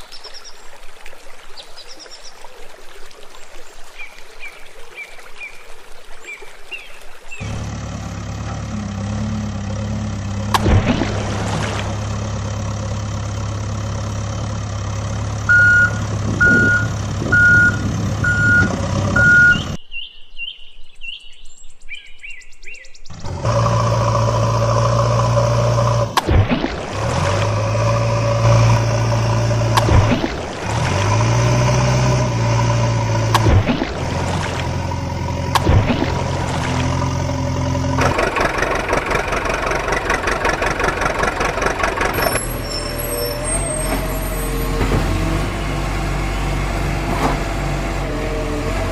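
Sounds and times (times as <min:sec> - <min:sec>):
heavy truck engine running: 0:07.4 - 0:19.8, 0:23.1 - 0:48.9
reversing alarm beeping: 0:15.5 - 0:19.8.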